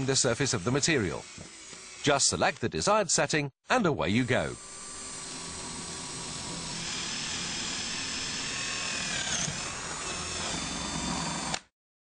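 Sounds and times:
cordless drill motor whine: 0.0 - 2.1, 4.2 - 11.6.

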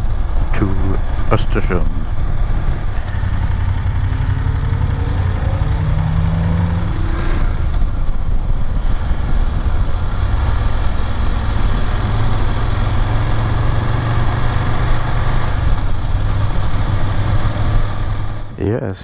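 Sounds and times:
wind and road noise: 0.0 - 18.5
motorcycle engine accelerating: 0.0 - 18.7.

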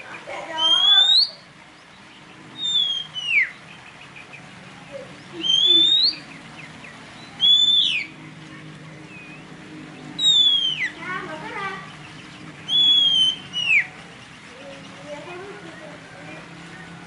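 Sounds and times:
bird singing whistled phrases: 0.5 - 1.5, 2.5 - 3.8, 5.3 - 6.4, 7.2 - 8.2, 10.2 - 11.1, 12.6 - 14.0.

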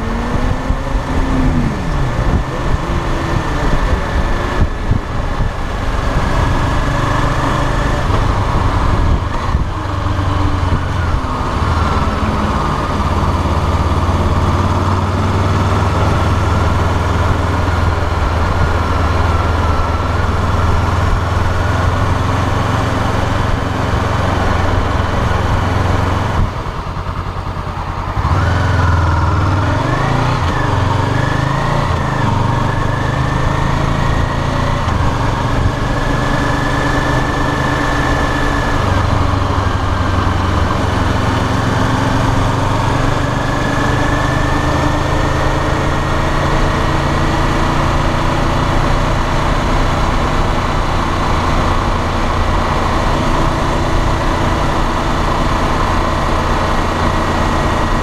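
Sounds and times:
wind rushing: 0.0 - 13.6
motorcycle engine accelerating: 0.0 - 58.0.

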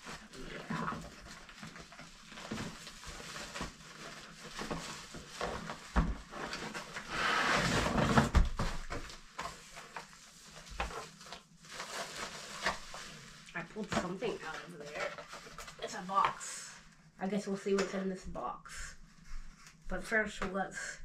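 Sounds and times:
plastic crinkling: 0.0 - 16.4.

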